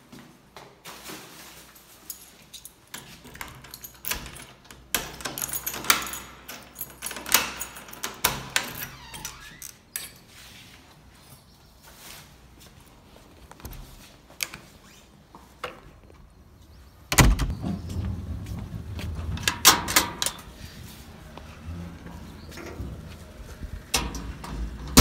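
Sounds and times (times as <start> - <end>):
door lock and handle rattling: 2.1 - 10.3, 17.1 - 17.6, 19.2 - 20.6, 23.8 - 25.0
footsteps: 17.4 - 19.6, 20.4 - 23.9.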